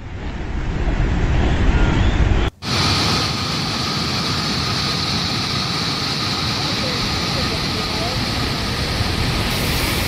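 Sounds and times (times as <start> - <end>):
low rumbling rush of mud flow: 0.0 - 10.0
hiss of rushing water: 2.5 - 10.0.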